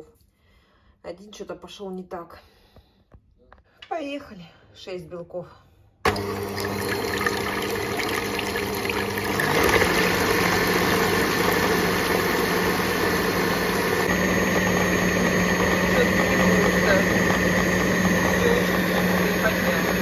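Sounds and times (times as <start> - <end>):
electric hand mixer humming: 6.1 - 20.0.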